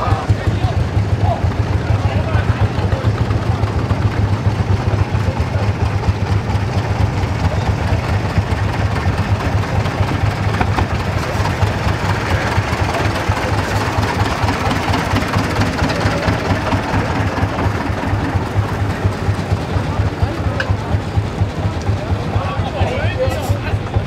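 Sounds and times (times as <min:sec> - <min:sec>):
tractor engine throbbing: 0:00.0 - 0:24.0.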